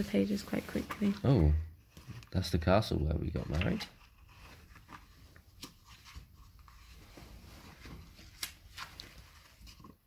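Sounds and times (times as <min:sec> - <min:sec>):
book pages turning: 0:03.4 - 0:10.0.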